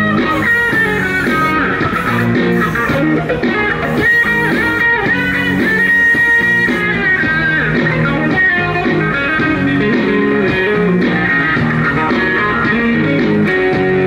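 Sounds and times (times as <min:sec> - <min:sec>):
bluesy guitar melody: 0:00.0 - 0:14.0.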